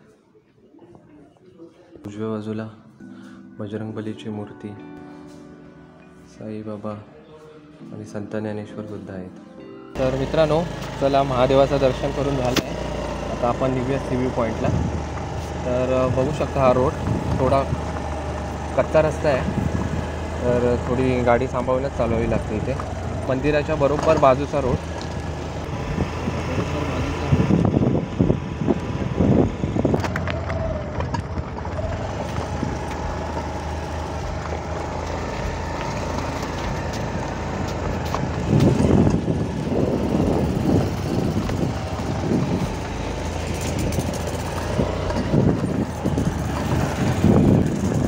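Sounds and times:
low rumbles: 10.0s - 48.0s
vehicle engine driving on dirt road: 10.0s - 48.0s.

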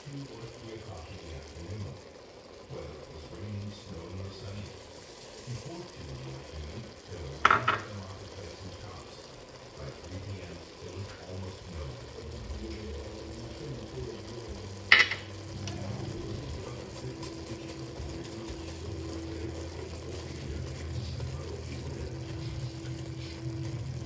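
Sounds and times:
meat sizzling in a pot: 0.0s - 24.0s
wooden spoon scraping a pot: 4.7s - 6.0s, 14.2s - 24.0s.

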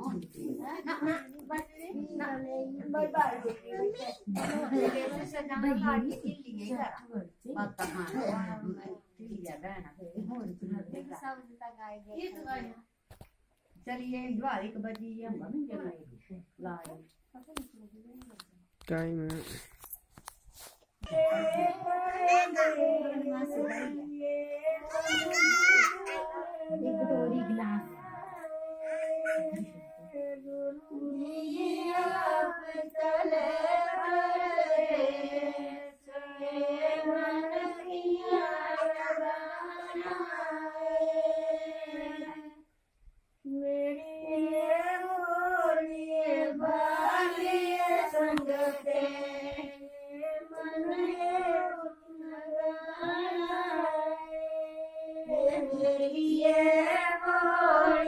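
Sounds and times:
women singing folk song: 21.0s - 42.7s, 43.4s - 58.0s.

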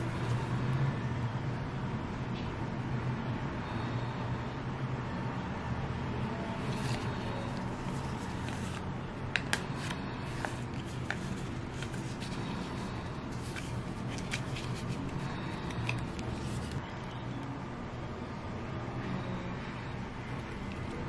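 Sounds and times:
low background hum: 0.0s - 21.0s
paper rustling: 6.6s - 16.8s
sharp paper clicks: 6.7s - 12.5s.

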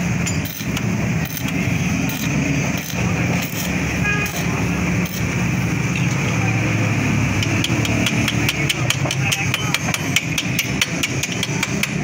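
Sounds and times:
steel tool tapping on metal: 7.4s - 12.0s.

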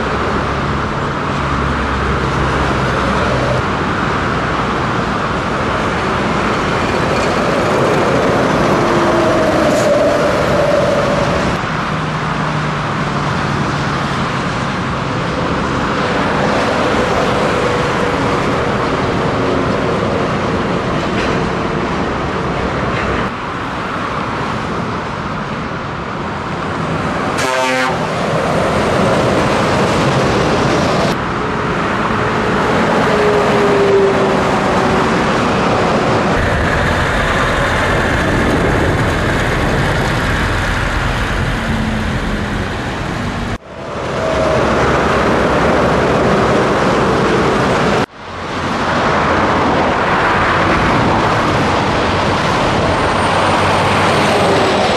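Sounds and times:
heavy road noise: 0.0s - 54.9s
truck engine running: 36.0s - 43.6s.

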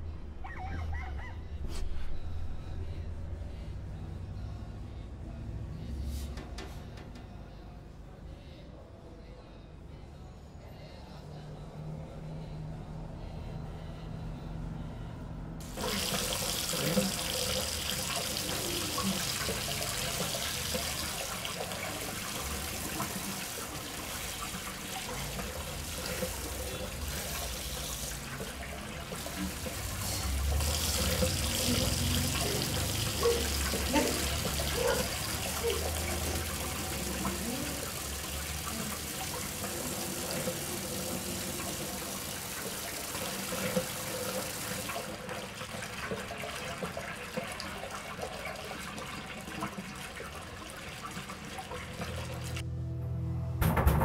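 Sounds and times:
tap water running and splashing: 15.6s - 52.6s.

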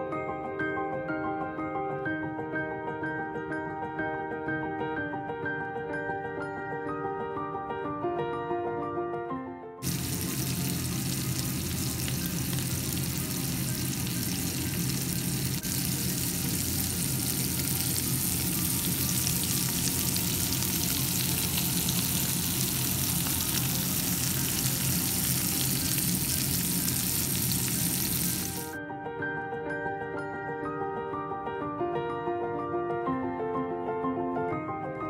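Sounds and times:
oil sizzling and crackling: 9.8s - 28.8s.

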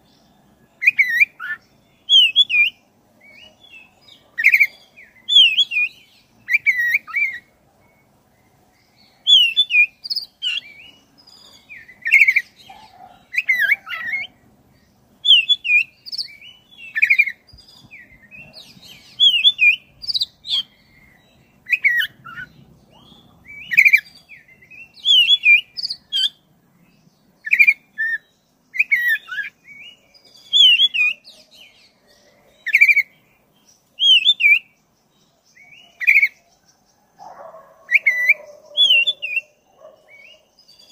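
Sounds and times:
bird singing: 0.0s - 40.9s.

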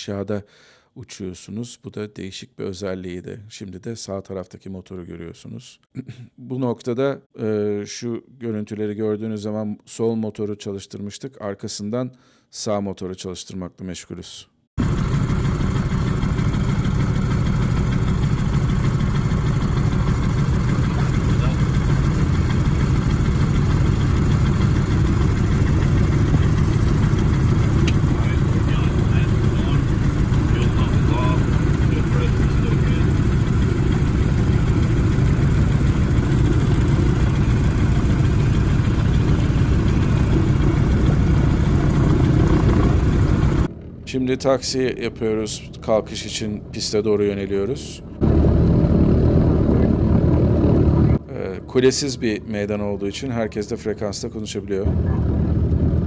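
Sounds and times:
propeller plane engines idling: 14.8s - 46.8s, 47.8s - 51.2s, 54.9s - 56.0s.

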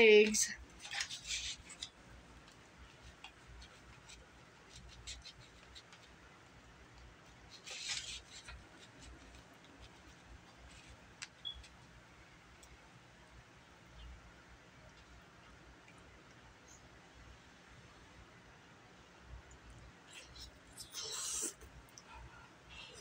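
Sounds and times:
fork scraping on paper plate: 7.4s - 10.8s.

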